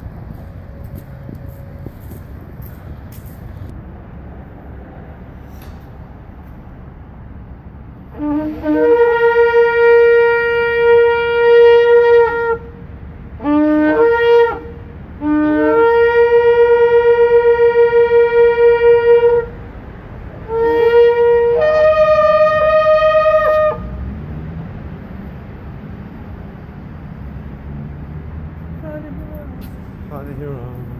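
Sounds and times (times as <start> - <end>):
shofar blasts: 8.1 - 12.8, 13.4 - 19.6, 20.4 - 24.0.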